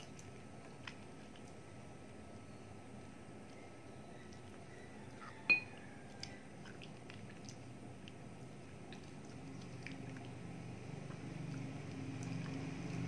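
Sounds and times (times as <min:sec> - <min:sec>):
chewing and gnawing: 0:00.0 - 0:01.7, 0:03.5 - 0:13.0
sharp ringing clink: 0:05.5 - 0:05.7.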